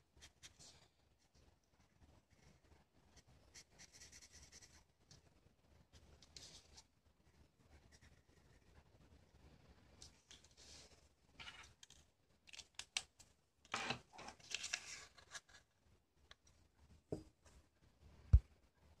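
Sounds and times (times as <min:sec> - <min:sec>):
paper rustling and crinkling: 0:13.7 - 0:15.7.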